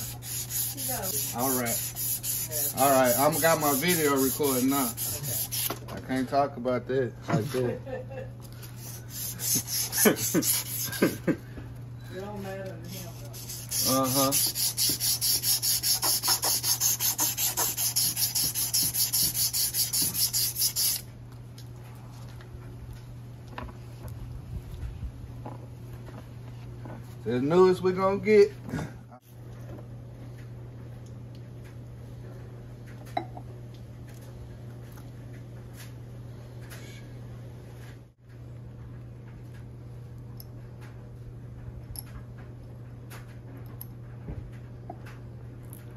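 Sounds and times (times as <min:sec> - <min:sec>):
abrasive cloth rasping on metal shaft: 0:00.0 - 0:05.8, 0:08.7 - 0:11.2, 0:12.8 - 0:21.0
steady low hum: 0:00.0 - 0:45.9.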